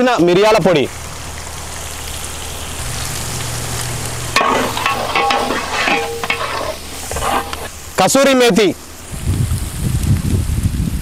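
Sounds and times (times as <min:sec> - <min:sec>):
vegetables sizzling in a pot: 0:00.0 - 0:11.0
ladle scraping and clinking pot: 0:04.3 - 0:07.9.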